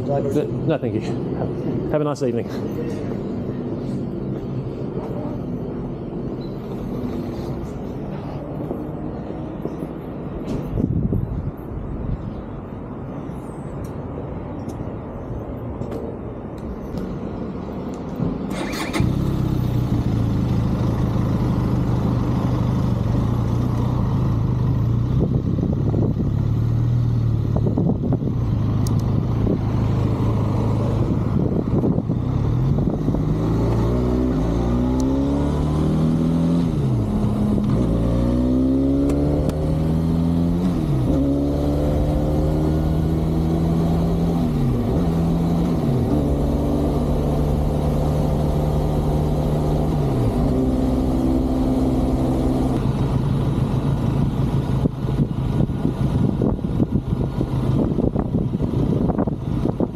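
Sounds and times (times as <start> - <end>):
motorcycle engine revving: 30.1 - 52.9.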